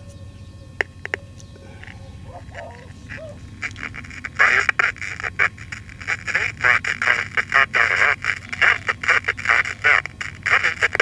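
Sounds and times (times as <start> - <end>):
low hum: 0.0 - 11.0
crackly garbled radio audio: 0.7 - 11.0
radio clicks: 0.8 - 11.0.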